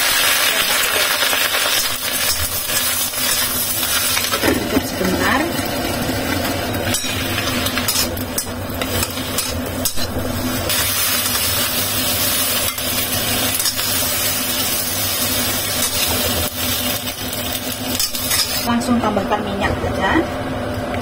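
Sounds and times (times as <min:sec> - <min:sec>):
onions sizzling in a wok: 0:00.0 - 0:19.6
spatula scraping pan: 0:06.9 - 0:14.8.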